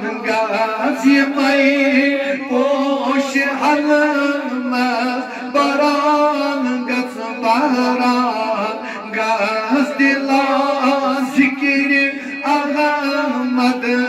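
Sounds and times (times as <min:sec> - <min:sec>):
men singing unaccompanied: 0:00.0 - 0:14.0.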